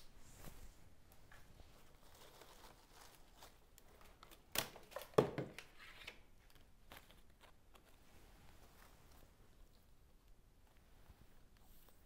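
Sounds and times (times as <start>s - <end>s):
leaf stems rustling and crackling: 1.3s - 5.1s.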